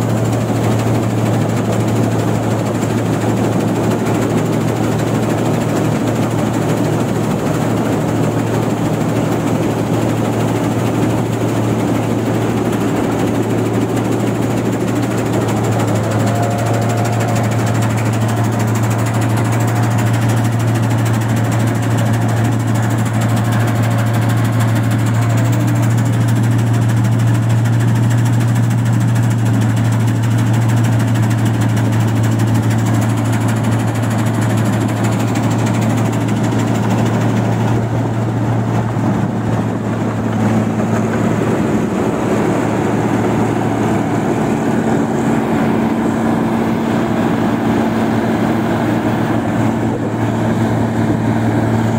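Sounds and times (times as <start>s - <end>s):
clattering harvester machinery: 0.0s - 51.9s
diesel engine drone: 0.0s - 51.9s
higher steady tone: 11.6s - 25.7s.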